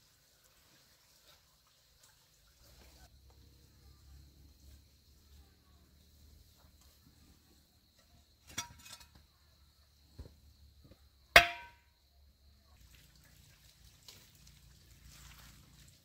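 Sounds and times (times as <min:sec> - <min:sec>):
faint outdoor background: 0:00.0 - 0:16.0
objects clattering: 0:08.4 - 0:09.3
sharp loud knock with ring: 0:11.4 - 0:11.8.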